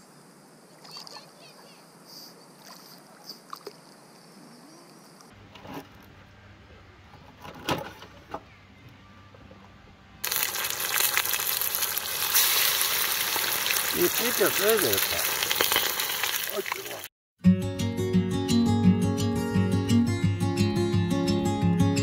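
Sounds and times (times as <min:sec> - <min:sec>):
fish frying in hot oil: 0:10.2 - 0:17.1.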